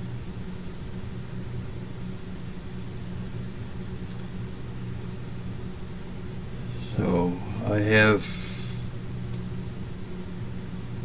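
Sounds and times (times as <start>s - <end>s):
low electrical hum: 0.0s - 11.0s
faint clicks: 2.4s - 3.3s.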